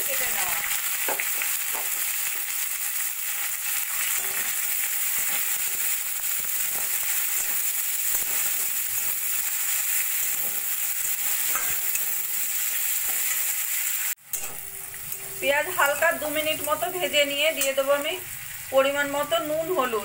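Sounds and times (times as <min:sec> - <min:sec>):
onions sizzling in hot oil: 0:00.0 - 0:20.0
metal spatula scraping pan: 0:03.9 - 0:13.5, 0:14.3 - 0:17.9.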